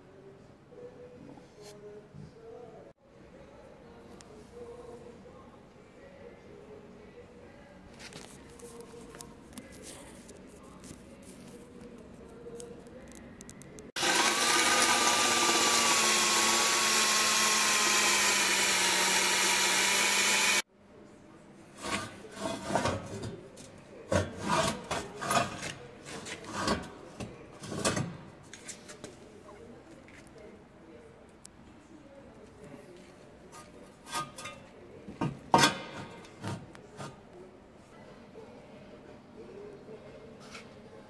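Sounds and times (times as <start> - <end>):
cordless drill boring through steel: 14.0 - 20.6.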